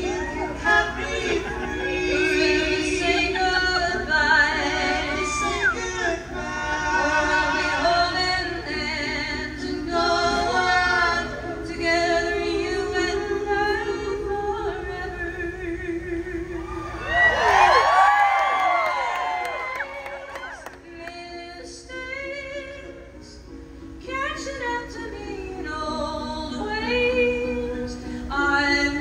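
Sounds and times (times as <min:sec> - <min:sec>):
acoustic guitar: 0:00.0 - 0:17.4, 0:19.4 - 0:29.0
three-part vocal harmony: 0:00.0 - 0:17.4
audience cheering and whistling: 0:05.0 - 0:06.0, 0:16.6 - 0:20.8.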